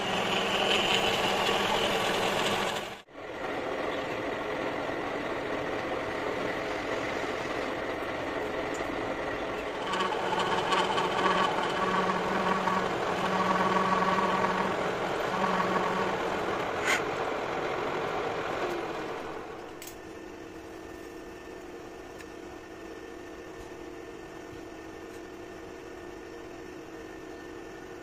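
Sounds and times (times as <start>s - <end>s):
metal lathe running: 0.0s - 19.6s
hand drill motor whine: 9.7s - 16.5s.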